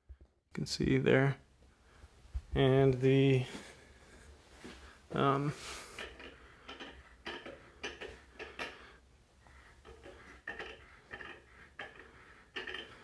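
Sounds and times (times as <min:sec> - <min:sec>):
clicks and knocks on metal stand: 0:06.0 - 0:08.8.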